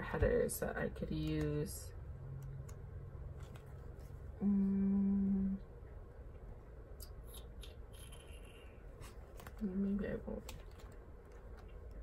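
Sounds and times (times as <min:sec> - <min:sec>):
pages rustling: 0:03.4 - 0:04.2
woman humming: 0:04.4 - 0:05.6.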